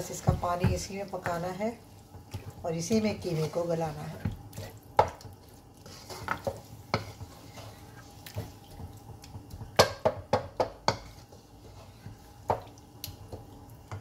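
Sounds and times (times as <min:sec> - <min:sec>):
spatula scraping metal frying pan: 0:05.8 - 0:08.1, 0:10.8 - 0:12.3.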